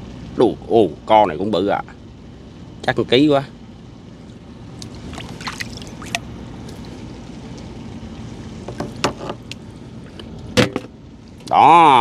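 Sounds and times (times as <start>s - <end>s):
boat engine hum: 0.0s - 12.0s
water splashing and trickling: 4.8s - 7.7s
sharp knocks and clicks: 8.7s - 9.6s.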